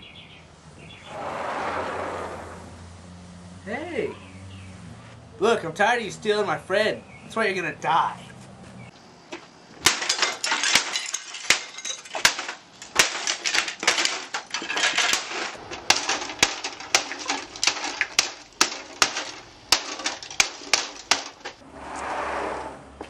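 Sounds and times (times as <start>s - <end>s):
bat smashing plastic printer: 9.8s - 21.6s
breaking plastic clattering: 9.8s - 21.6s.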